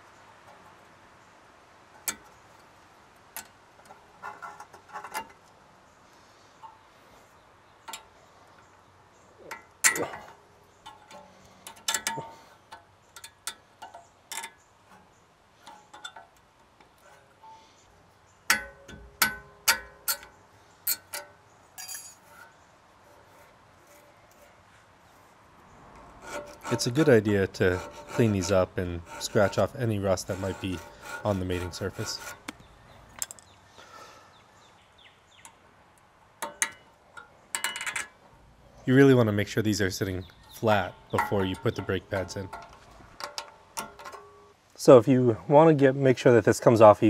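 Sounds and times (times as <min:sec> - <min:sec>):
metallic clicks and clinks: 0:18.5 - 0:22.5.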